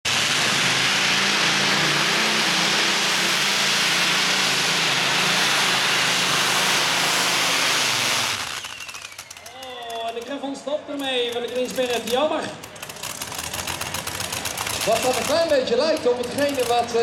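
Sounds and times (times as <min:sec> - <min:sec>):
aircraft engine running hard: 0:00.1 - 0:09.4.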